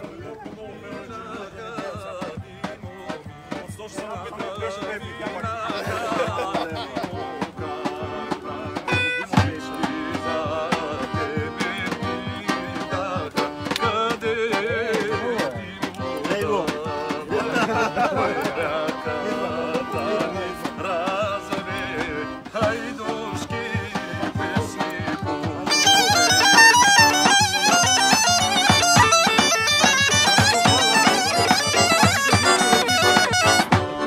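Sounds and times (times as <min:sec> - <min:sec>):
accordion: 0:00.0 - 0:34.0
bagpipe: 0:00.8 - 0:04.1, 0:04.7 - 0:34.0
wind instrument: 0:07.4 - 0:10.4, 0:23.8 - 0:34.0.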